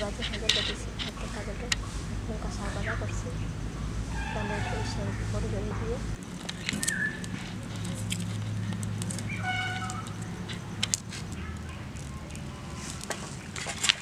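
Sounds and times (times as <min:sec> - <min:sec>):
low steady hum: 0:00.0 - 0:14.0
garlic peeling clicks and crackles: 0:06.1 - 0:14.0.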